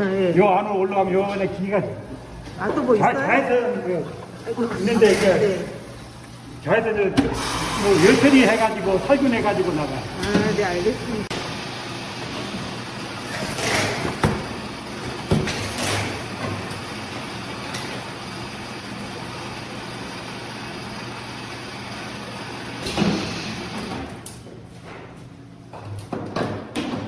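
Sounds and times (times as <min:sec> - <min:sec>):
bottle filling machine humming: 0:00.0 - 0:24.5.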